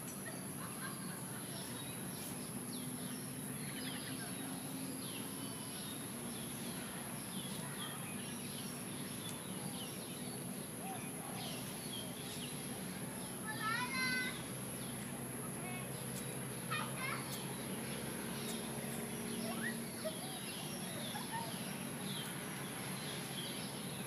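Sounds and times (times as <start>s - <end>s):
birds chirping: 0.0s - 24.0s
low background hum: 0.0s - 24.0s.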